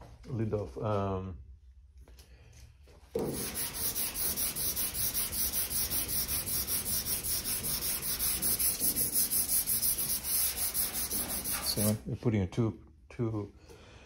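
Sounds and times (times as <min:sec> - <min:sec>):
sandpaper scrubbing metal: 0:03.2 - 0:12.0.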